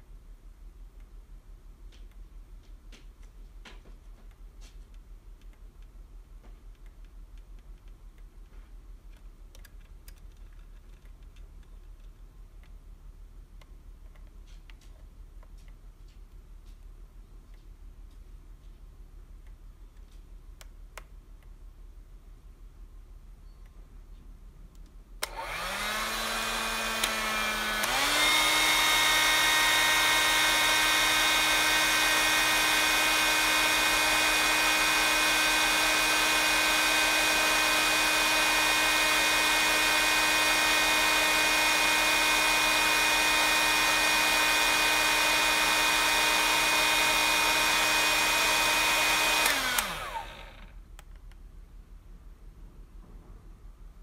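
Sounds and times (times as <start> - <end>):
hair dryer switch click: 25.2 - 35.8, 36.4 - 51.1
hair dryer whining: 25.2 - 50.8.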